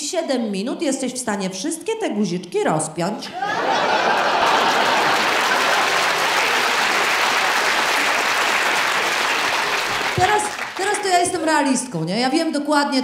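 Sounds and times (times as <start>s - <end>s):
audience applauding: 3.4s - 11.5s.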